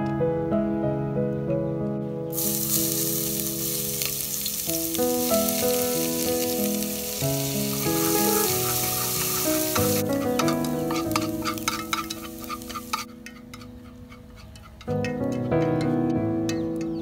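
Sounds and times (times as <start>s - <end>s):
background music: 0.0s - 17.0s
food sizzling in hot oil: 2.3s - 13.4s
wooden spatula clicking on pot: 9.8s - 15.9s.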